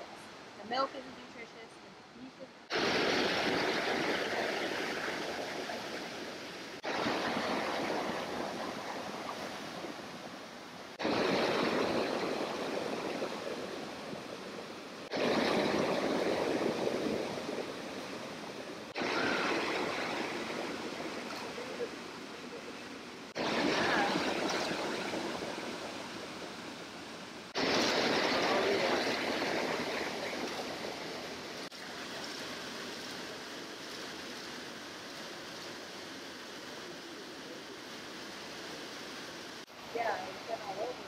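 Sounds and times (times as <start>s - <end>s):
water rushing over boulders: 2.6s - 41.0s.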